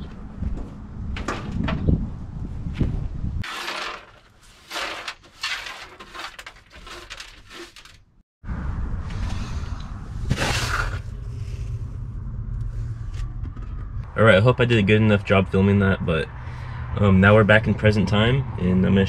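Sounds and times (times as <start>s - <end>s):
brush sweeping metal floor: 3.4s - 8.0s
low rumble: 8.4s - 17.0s.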